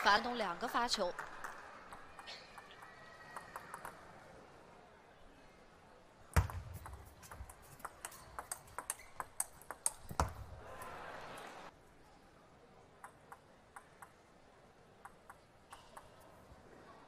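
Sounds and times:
ping pong ball clicking: 1.9 - 4.0, 6.4 - 10.4, 13.0 - 14.2, 15.0 - 16.2.

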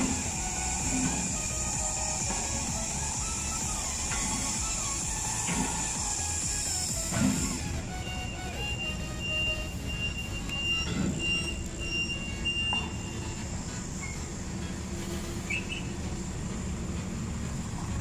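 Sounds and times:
low rumble of traffic: 0.0 - 18.0.

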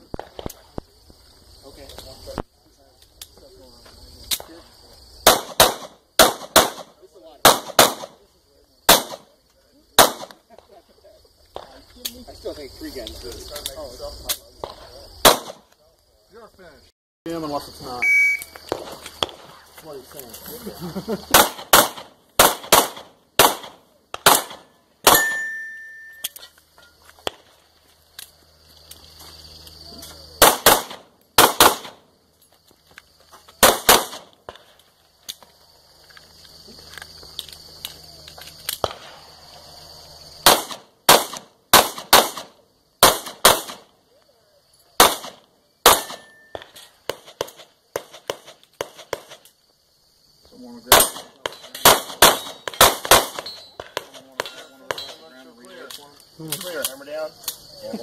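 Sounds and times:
pistol shots: 5.2 - 8.2, 8.9 - 9.3, 10.0 - 10.4, 14.6 - 15.7, 21.3 - 25.5, 30.4 - 32.0, 33.6 - 34.6, 38.8 - 39.2, 40.4 - 43.9, 45.0 - 49.4, 50.9 - 55.2.

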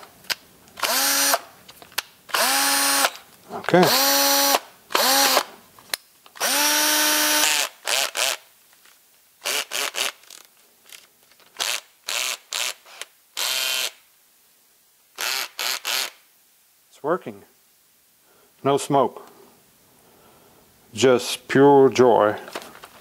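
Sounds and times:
cordless drill motor whining: 0.8 - 1.4, 2.3 - 3.2, 3.8 - 5.5, 6.4 - 8.4, 11.6 - 14.0.

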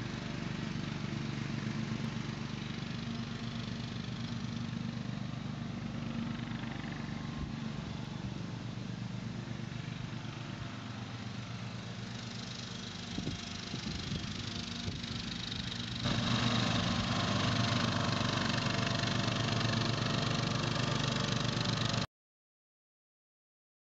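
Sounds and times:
lawn mower engine running: 0.0 - 22.1.

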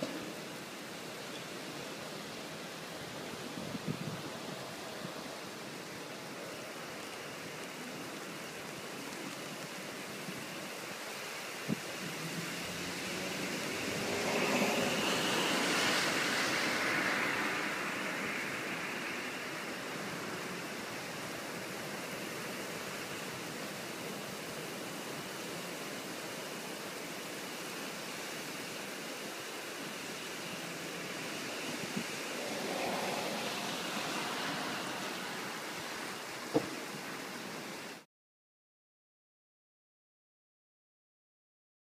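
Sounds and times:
heavy rain: 0.0 - 38.1
wind: 0.0 - 38.1.

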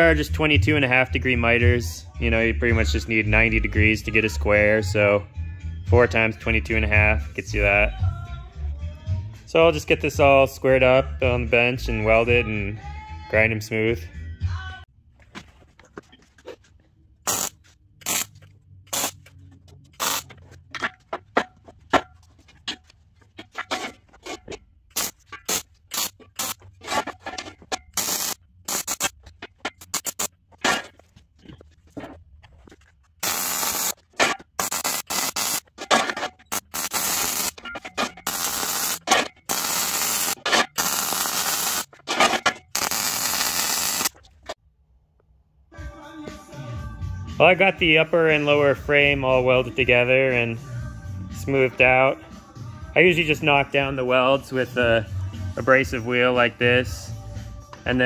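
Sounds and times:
welding arc crackling: 17.3 - 19.2, 20.0 - 20.3, 25.0 - 26.6, 28.0 - 30.3, 33.2 - 34.0, 34.6 - 35.8, 36.5 - 41.9, 42.7 - 44.2.

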